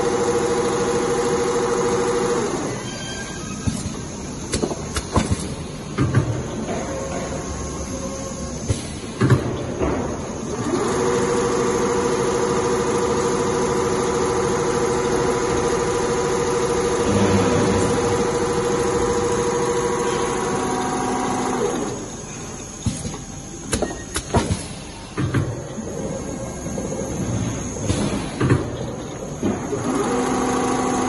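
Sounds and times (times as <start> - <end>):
sewing machine humming: 0.0 - 2.8, 10.5 - 22.2, 29.7 - 31.0.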